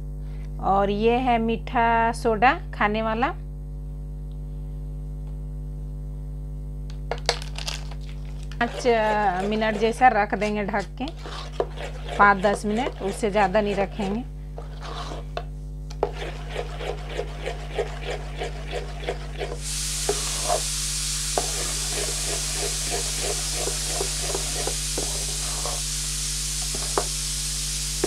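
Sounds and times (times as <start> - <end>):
spoon stirring thick batter: 8.6 - 25.9
steady hiss: 19.6 - 28.0.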